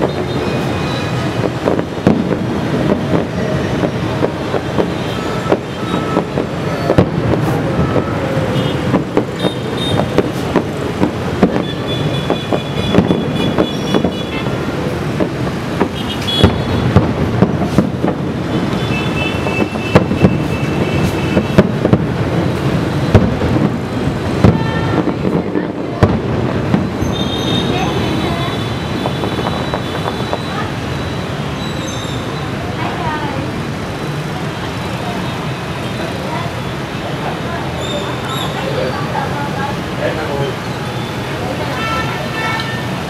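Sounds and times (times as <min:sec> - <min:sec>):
distant fireworks bangs and pops: 0:00.0 - 0:32.2
city traffic: 0:00.0 - 0:43.0
crowd noise: 0:00.0 - 0:43.0.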